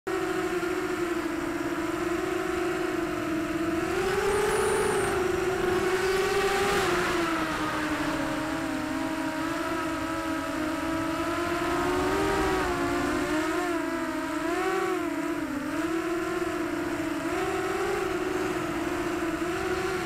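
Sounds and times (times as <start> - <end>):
quadcopter motors whining: 0.1 - 20.0
wind hiss: 3.3 - 13.7.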